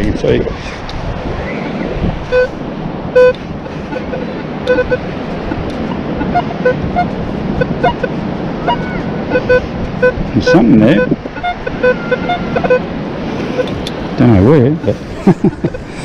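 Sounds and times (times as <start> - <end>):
surf and wind hiss: 0.0 - 16.0
metal detector short beeps: 2.3 - 2.6, 3.2 - 12.8.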